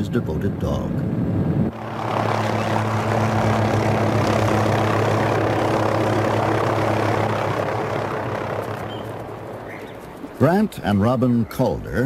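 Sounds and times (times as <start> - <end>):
helicopter engine and rotor hum: 1.7 - 11.0.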